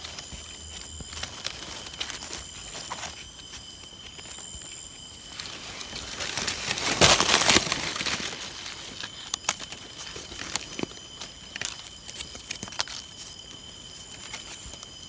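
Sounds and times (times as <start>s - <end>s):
dry leaves rustling and crackling: 0.0s - 15.0s.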